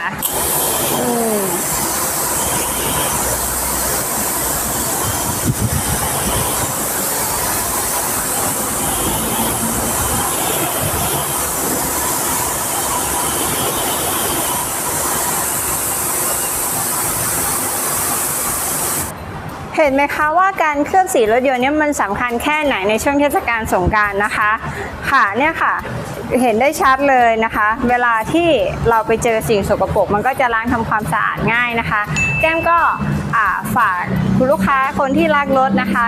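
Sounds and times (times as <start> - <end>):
pressure washer spraying water: 0.0 - 19.1.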